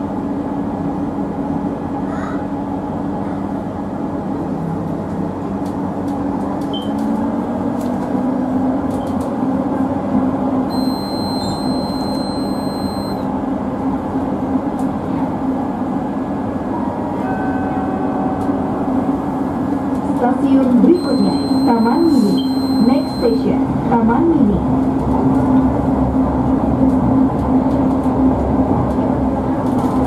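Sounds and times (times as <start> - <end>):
train rolling and motor hum: 0.0 - 30.0
high electronic beep: 10.7 - 13.2, 21.0 - 23.3.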